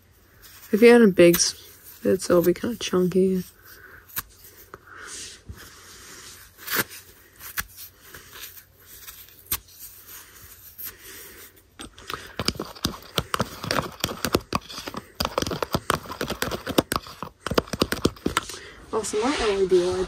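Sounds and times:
paper tearing and rustling: 0:06.3 - 0:10.8
spoon stirring in plastic tub: 0:11.8 - 0:18.5.

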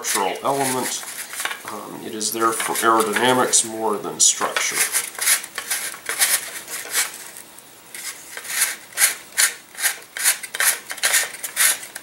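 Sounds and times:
sandpaper rasping on wood: 0:04.7 - 0:07.2, 0:08.0 - 0:12.0.

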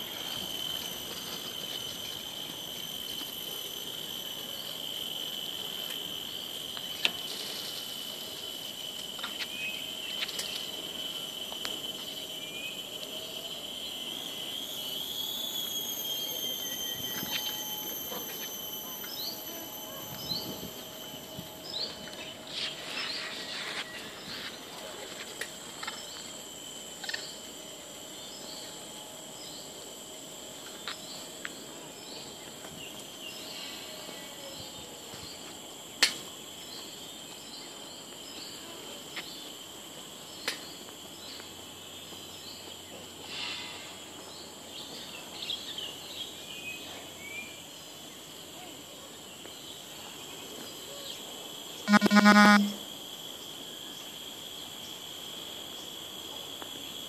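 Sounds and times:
insects droning: 0:00.0 - 0:57.0
loud buzzy honk: 0:51.9 - 0:52.8
short high bird chirps: 0:51.9 - 0:52.8.

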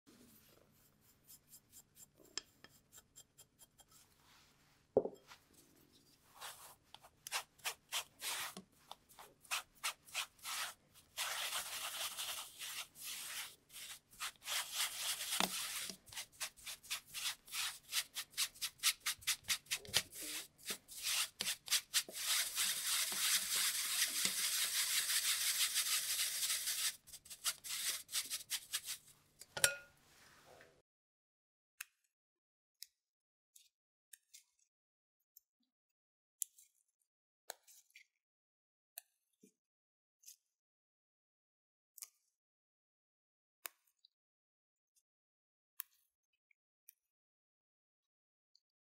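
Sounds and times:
brush scrubbing mesh sieve: 0:06.2 - 0:29.1.

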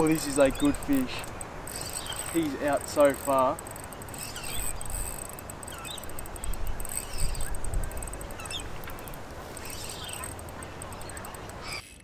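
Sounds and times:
bird chirps: 0:00.1 - 0:02.5, 0:03.8 - 0:12.0
wind noise on microphone: 0:04.1 - 0:10.5.

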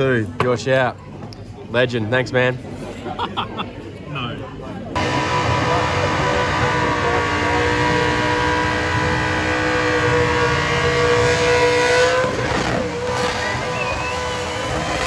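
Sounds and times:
car engine at high revs: 0:05.0 - 0:15.0.

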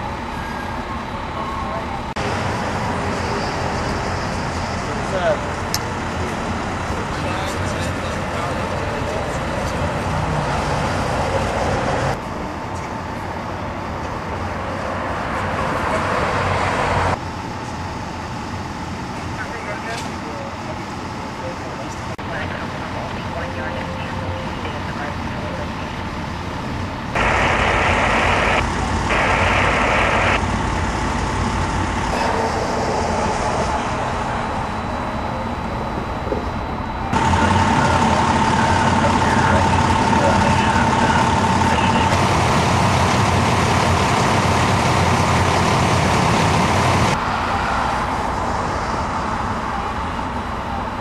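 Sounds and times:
heavy vehicles idling: 0:00.0 - 0:51.0
roadway noise: 0:00.0 - 0:51.0
loud hissing bursts: 0:27.2 - 0:30.4.

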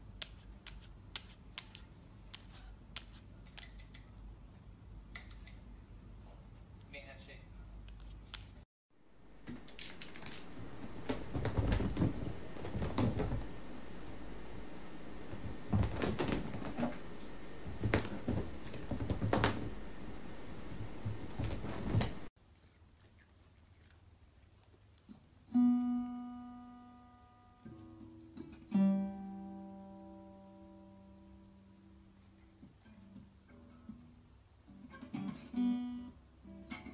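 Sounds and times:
knocks and thumps: 0:09.4 - 0:13.9, 0:15.2 - 0:19.9, 0:20.7 - 0:22.3
acoustic guitar plucked: 0:25.5 - 0:31.4, 0:32.9 - 0:36.9.

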